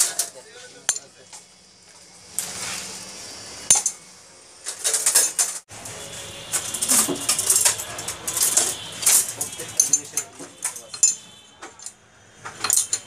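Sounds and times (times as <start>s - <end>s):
metal tools clinking: 0.0s - 2.6s, 3.7s - 4.0s, 4.6s - 5.6s, 6.5s - 13.0s.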